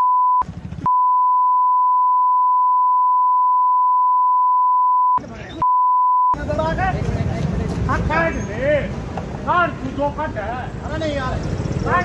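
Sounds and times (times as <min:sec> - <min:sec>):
censor bleep tone: 0:00.0 - 0:06.4.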